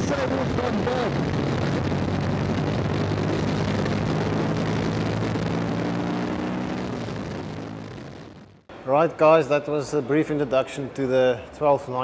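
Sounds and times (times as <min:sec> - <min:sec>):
motorcycle engine at speed: 0:00.0 - 0:08.6
wind rushing over microphone: 0:00.0 - 0:08.6.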